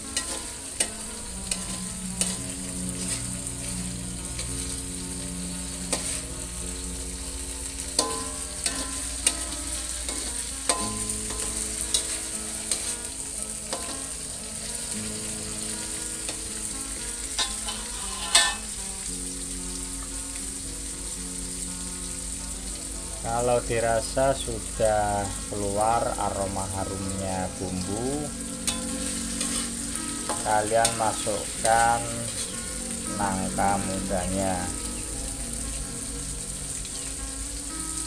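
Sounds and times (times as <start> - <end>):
metal spatula scraping a wok: 0.0 - 15.0, 15.8 - 19.0, 28.4 - 33.1
paste sizzling in oil: 0.0 - 38.0.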